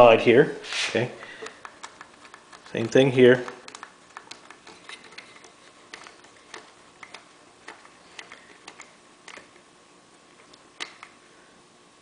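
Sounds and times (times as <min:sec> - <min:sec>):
small metallic clicks: 0:01.2 - 0:09.6, 0:10.4 - 0:11.2.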